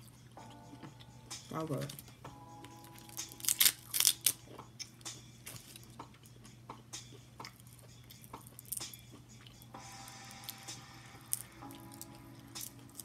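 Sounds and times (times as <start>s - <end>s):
crab shells cracking: 2.9s - 6.0s, 7.4s - 9.6s, 10.3s - 13.0s.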